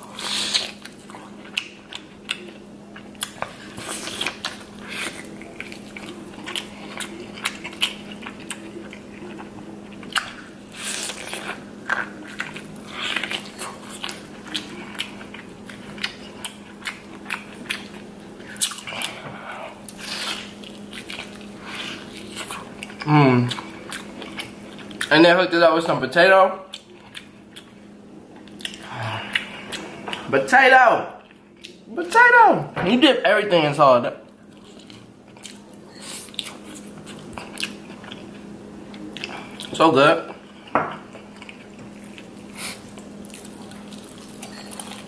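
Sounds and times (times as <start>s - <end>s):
person chewing corn: 0.0s - 25.1s, 26.7s - 30.3s, 34.3s - 45.0s.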